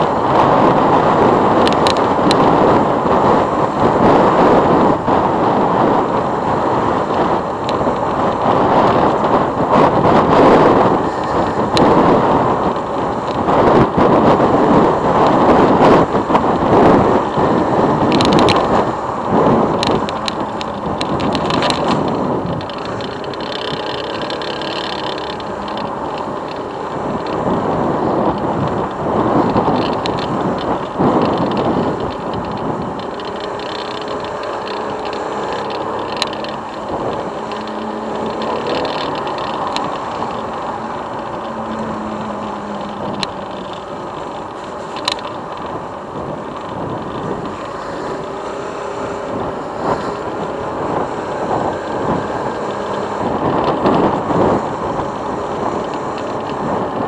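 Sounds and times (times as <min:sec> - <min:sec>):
motorcycle engine humming: 0:00.0 - 0:57.0
wind rushing over microphone: 0:00.0 - 0:57.0.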